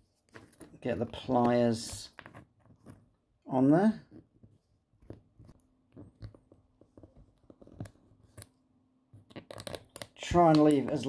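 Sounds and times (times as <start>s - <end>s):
plastic crunching and snapping: 9.2s - 11.0s.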